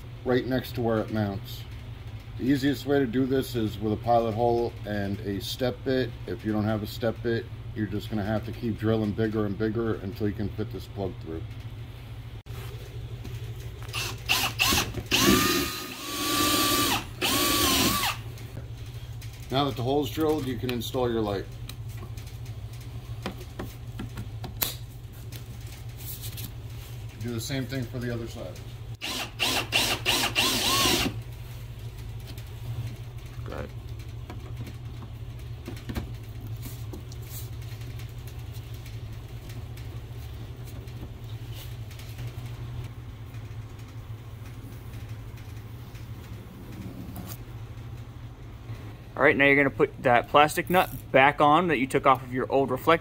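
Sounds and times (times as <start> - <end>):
steady low hum: 0.0 - 53.0
cordless drill whining: 13.9 - 18.2, 29.0 - 31.2
tape scratching and rustling: 24.6 - 27.0.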